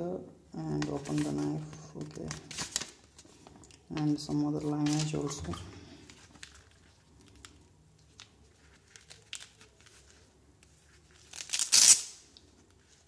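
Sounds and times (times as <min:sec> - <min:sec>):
velcro strap ripped open: 0:11.2 - 0:12.4.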